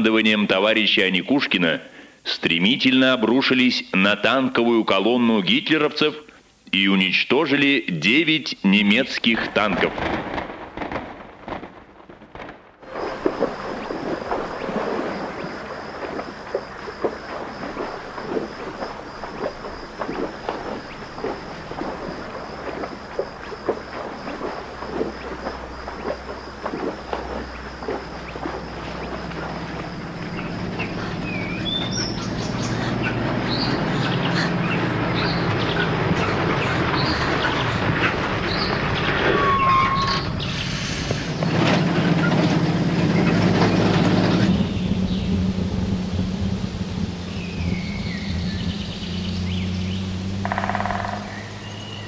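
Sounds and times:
insects chirping: 12.8s - 52.0s
birds chirping: 12.9s - 40.6s, 47.2s - 52.0s
low rumble: 42.9s - 50.3s.

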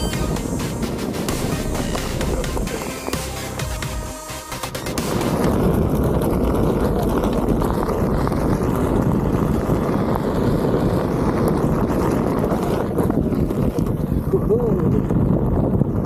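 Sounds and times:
electric board rumbling on dirt: 0.0s - 16.0s
wind on camera microphone: 4.9s - 16.0s.

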